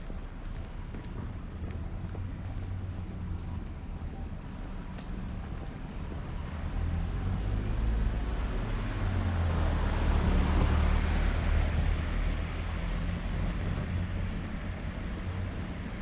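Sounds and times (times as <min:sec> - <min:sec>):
car driving past: 0:05.9 - 0:16.0.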